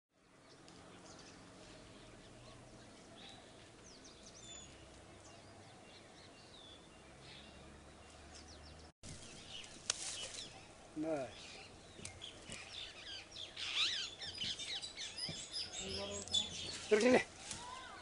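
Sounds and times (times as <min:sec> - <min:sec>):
low outdoor background: 0:00.1 - 0:18.0
bird chirps and whistled calls: 0:11.3 - 0:16.9.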